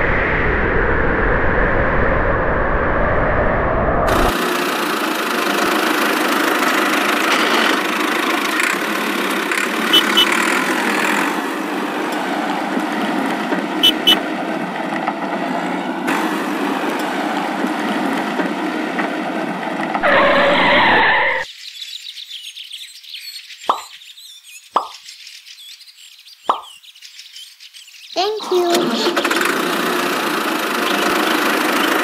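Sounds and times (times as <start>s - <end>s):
toy tractor motor whirring: 4.3s - 11.4s, 28.5s - 32.0s
loud high-pitched sound: 13.8s - 14.2s.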